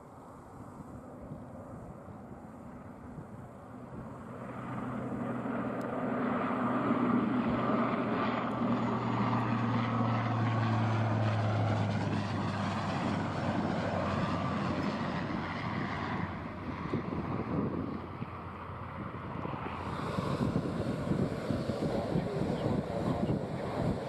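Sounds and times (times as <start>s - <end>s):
turboprop propeller drone: 0.0s - 24.0s.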